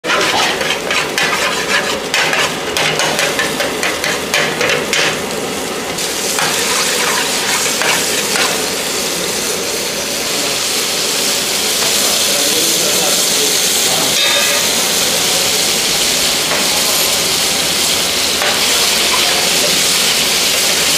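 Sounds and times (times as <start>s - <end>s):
metal ladle scraping a pan: 0.0s - 5.2s, 6.4s - 8.6s
sauce sizzling in a pan: 0.0s - 20.9s.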